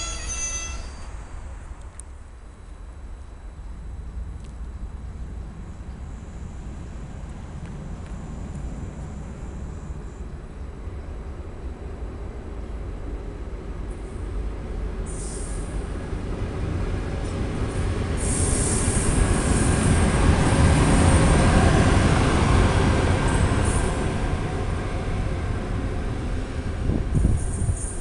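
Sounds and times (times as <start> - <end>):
high-pitched wheel squeals: 0.0 - 1.3
locomotive wheels rumbling on rail: 0.0 - 28.0.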